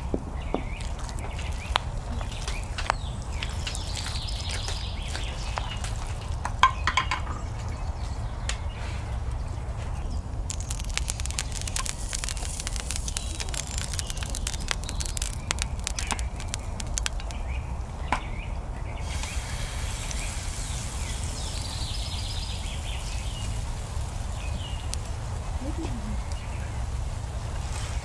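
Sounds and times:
wood fire crackling: 0:00.0 - 0:08.6, 0:09.2 - 0:18.1, 0:19.0 - 0:28.0
fire popping: 0:00.0 - 0:08.7, 0:09.3 - 0:18.2, 0:19.0 - 0:28.0
faint bird chirps: 0:10.0 - 0:17.7.

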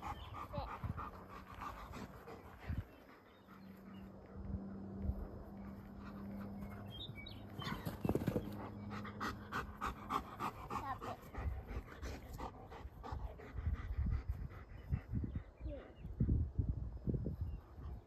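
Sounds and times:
dog panting quickly: 0:00.0 - 0:16.5.

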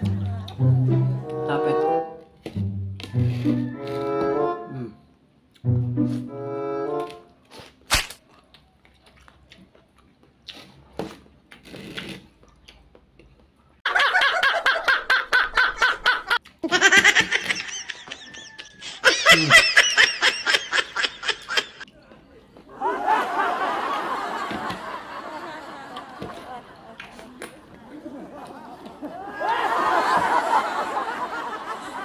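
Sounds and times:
faint eating mouth sounds: 0:07.1 - 0:13.8
man laughing hard: 0:13.9 - 0:21.8.

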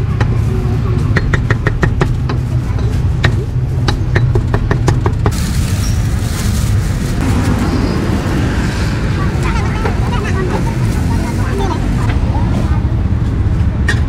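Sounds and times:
road traffic rumble: 0:00.0 - 0:14.0
plastic bag rustling: 0:05.3 - 0:08.2.

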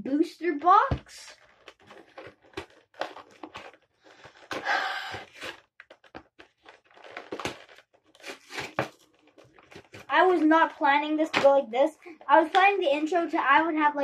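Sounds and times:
packaging tearing: 0:01.4 - 0:10.1
packaging crinkling: 0:01.4 - 0:10.2.

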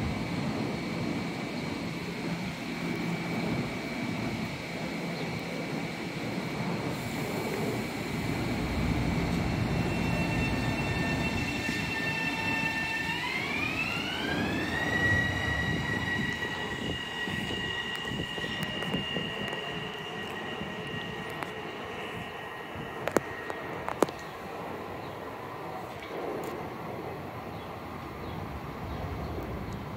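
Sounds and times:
traction motor whine: 0:00.0 - 0:25.1
train wheels rumbling on rail: 0:00.0 - 0:29.9.

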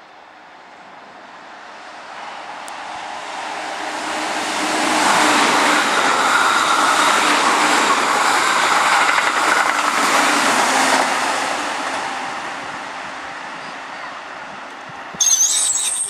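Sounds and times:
electric train passing: 0:00.4 - 0:16.0
wheels clicking over rail joints: 0:07.9 - 0:11.0.

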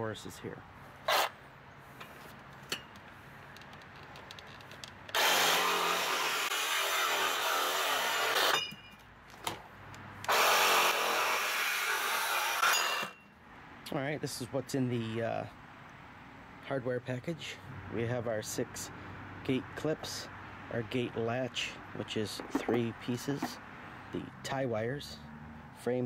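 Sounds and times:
power saw cutting metal: 0:05.1 - 0:08.8, 0:10.3 - 0:13.2.

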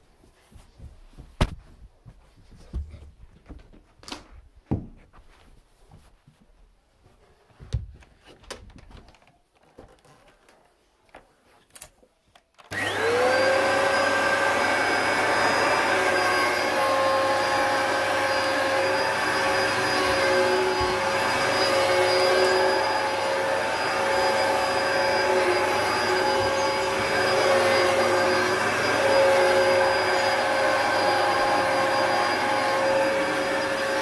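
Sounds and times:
vacuum cleaner motor running: 0:12.7 - 0:34.0.

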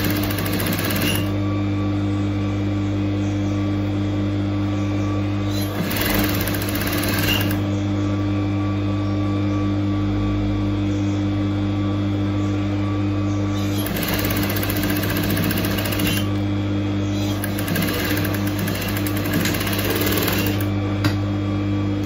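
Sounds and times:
sewing machine stitching: 0:00.0 - 0:01.3, 0:05.5 - 0:07.6, 0:13.6 - 0:16.3, 0:17.2 - 0:20.7.

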